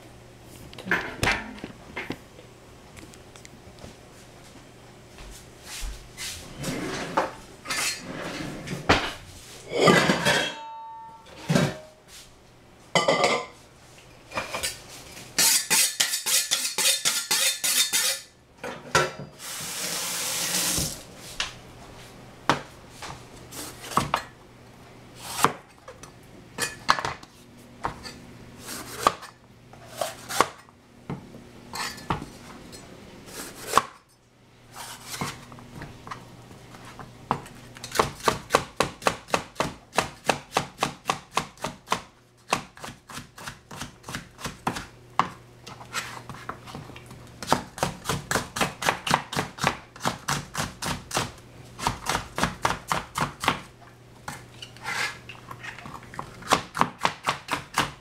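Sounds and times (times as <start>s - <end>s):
utensils and cookware clattering: 6.6s - 12.0s, 13.0s - 13.6s, 14.3s - 20.2s, 26.6s - 27.2s, 31.7s - 32.9s.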